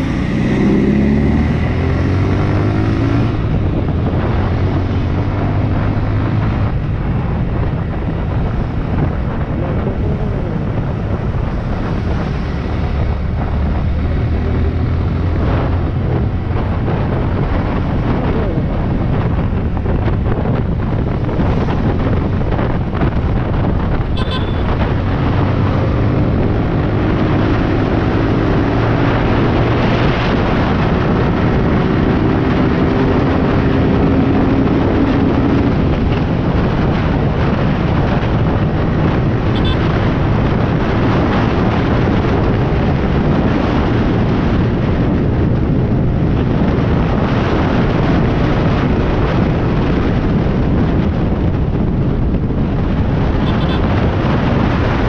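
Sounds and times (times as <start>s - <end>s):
motorcycle engine droning: 0.0s - 43.5s
wind rushing over microphone: 0.0s - 55.0s.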